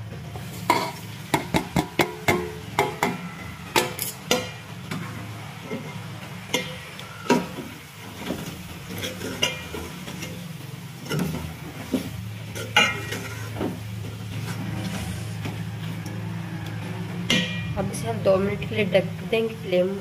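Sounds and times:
metal spoon scraping a metal pot: 3.8 - 4.6, 8.9 - 10.4, 12.5 - 13.6.

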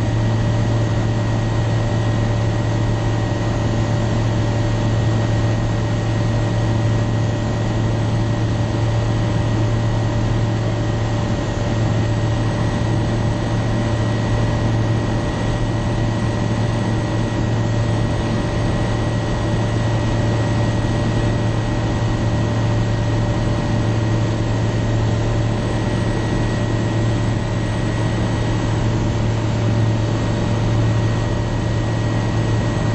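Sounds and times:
light aircraft engine drone: 0.0 - 32.9.

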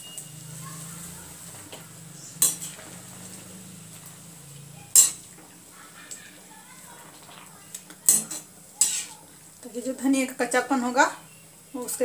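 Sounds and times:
metal spoon clinking on pot: 2.4 - 2.8, 4.9 - 5.3, 8.1 - 9.1.

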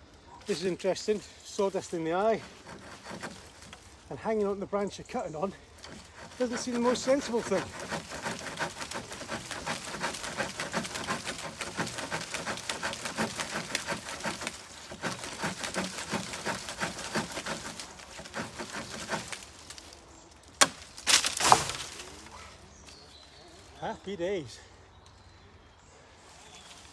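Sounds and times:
knife sawing through branch: 1.1 - 4.0, 5.4 - 19.9
sharp wood crack: 2.6 - 3.9, 5.8 - 22.4.

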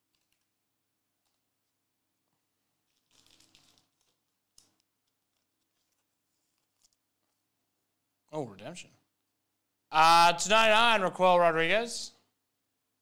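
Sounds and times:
trading card rustling: 0.0 - 7.5.

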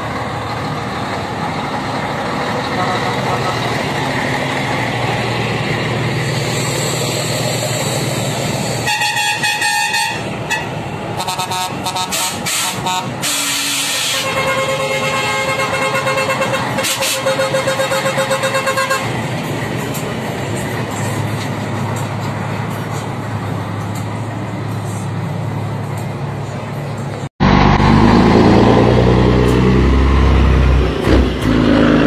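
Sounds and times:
diesel truck engines running: 0.0 - 32.0
truck horn toots: 2.7 - 3.8, 8.8 - 19.1.

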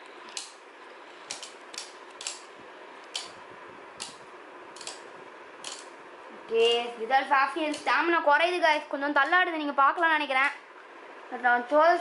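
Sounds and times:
tops clicking together: 1.2 - 3.4, 4.0 - 6.0.

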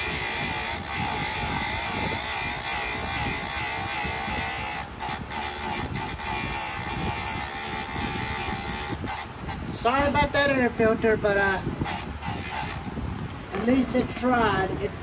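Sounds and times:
small electric motor whining: 0.0 - 9.8, 11.8 - 13.0.

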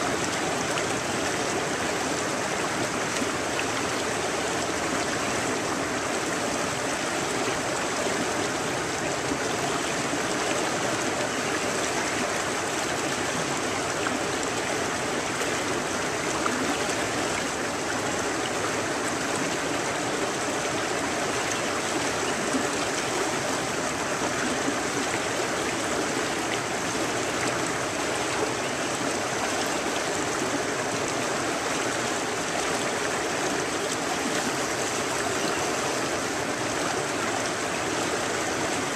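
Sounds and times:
river rushing: 0.0 - 38.9.

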